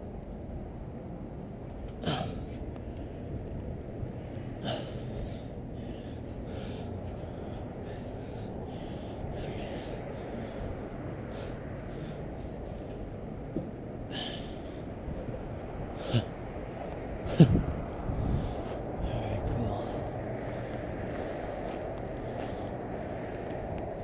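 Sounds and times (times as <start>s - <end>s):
person breathing: 4.6s - 13.2s, 14.1s - 16.4s, 17.2s - 23.8s.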